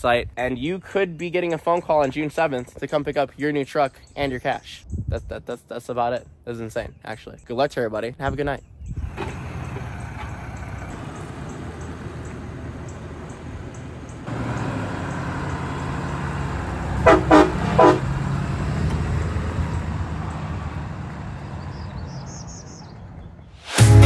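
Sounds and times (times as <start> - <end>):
diesel truck engine pulling away: 8.9 - 24.0
train horn blasts: 17.0 - 18.1.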